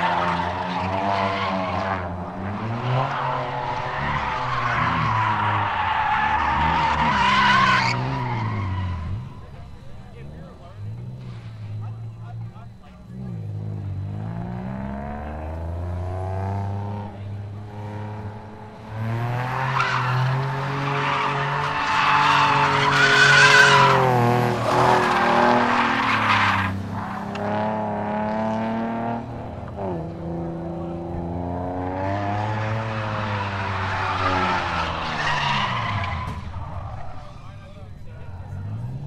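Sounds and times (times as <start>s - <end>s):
tyre squeal: 0.0s - 9.7s, 19.5s - 27.4s, 32.4s - 37.7s
car engine revving: 0.0s - 39.0s.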